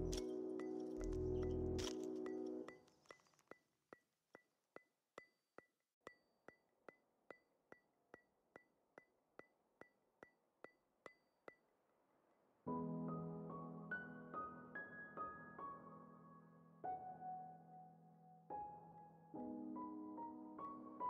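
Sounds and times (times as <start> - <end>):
background music: 0.0 - 2.7.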